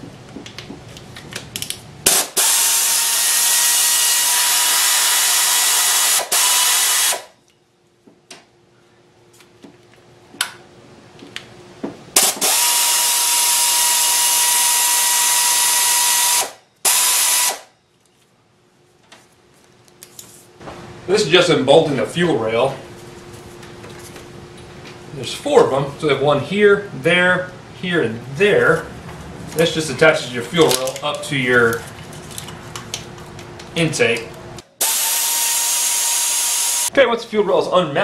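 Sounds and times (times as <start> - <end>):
air ratchet whining: 2.1 - 7.4, 12.2 - 17.7, 34.8 - 36.9.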